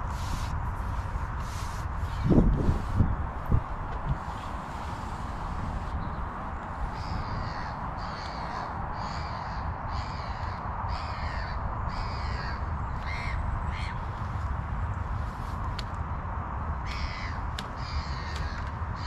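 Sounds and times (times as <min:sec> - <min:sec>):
wind rumble on microphone: 0:00.0 - 0:19.0
bird calling: 0:05.7 - 0:14.1.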